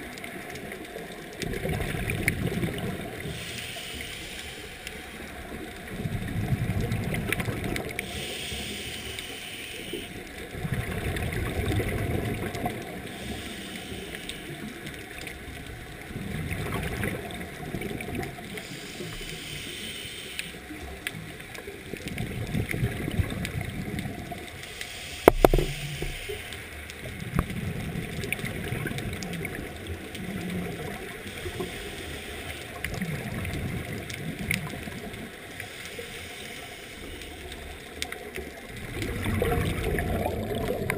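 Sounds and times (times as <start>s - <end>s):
exhaled bubbles rumbling: 0.0s - 3.5s, 5.2s - 8.2s, 10.2s - 13.3s, 14.6s - 18.7s, 20.7s - 24.6s, 25.2s - 26.3s, 26.9s - 31.7s, 32.8s - 35.6s, 37.5s - 40.9s
hissing inhalations: 3.2s - 5.1s, 8.0s - 10.2s, 13.1s - 14.7s, 18.6s - 20.7s, 24.6s - 26.7s, 31.2s - 32.8s, 35.6s - 37.6s.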